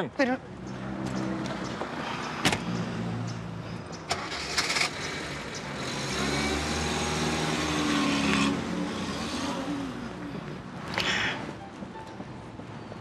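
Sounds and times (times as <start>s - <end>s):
car engine starting and revving: 2.6s - 10.1s.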